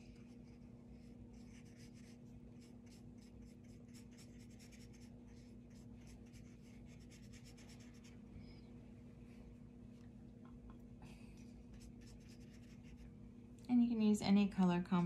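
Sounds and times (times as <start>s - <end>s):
low steady hum: 0.0s - 15.0s
paintbrush stroking on paper: 0.2s - 8.2s, 11.7s - 13.1s.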